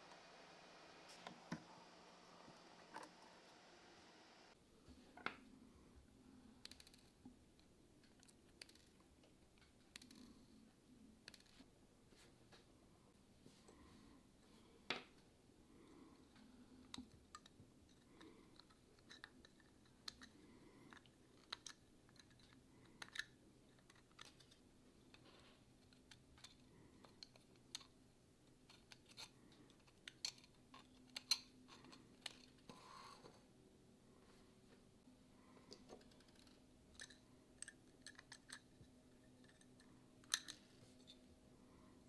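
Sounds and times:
plastic pieces clacking: 0:16.9 - 0:28.0.

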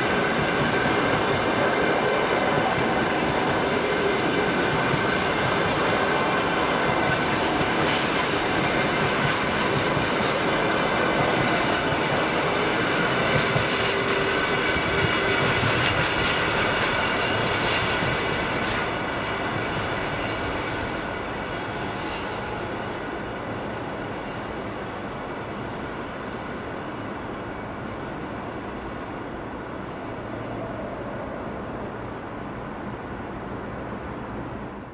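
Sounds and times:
train wheels clattering on rails: 0:00.0 - 0:25.7.

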